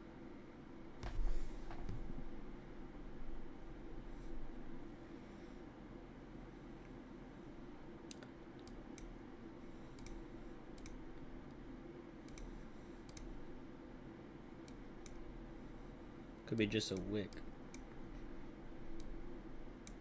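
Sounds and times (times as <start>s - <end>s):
faint steady hum: 0.0s - 20.0s
computer mouse clicking: 8.1s - 9.1s, 9.9s - 11.6s, 12.2s - 13.4s, 14.6s - 15.2s, 18.9s - 19.2s, 19.8s - 20.0s.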